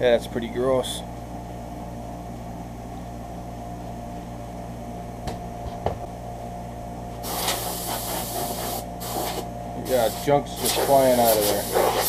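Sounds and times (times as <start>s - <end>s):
low electrical hum: 0.0s - 12.0s
compressed air hissing: 7.2s - 12.0s.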